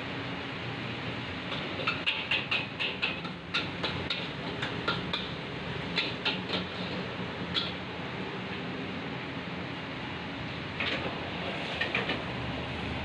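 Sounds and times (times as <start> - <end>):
metal utensils clanking on wok: 1.4 - 7.8, 10.8 - 12.3.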